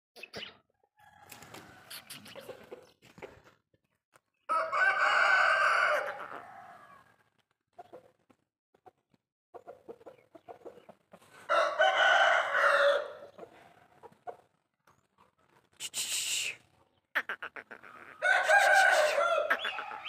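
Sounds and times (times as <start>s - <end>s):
rooster crowing: 4.5s - 7.1s, 11.5s - 13.3s, 18.2s - 20.0s.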